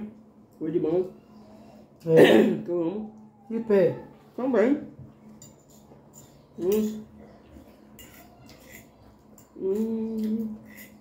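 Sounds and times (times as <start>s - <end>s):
cutlery scraping on glass plates: 7.8s - 11.0s
person humming: 9.6s - 10.6s.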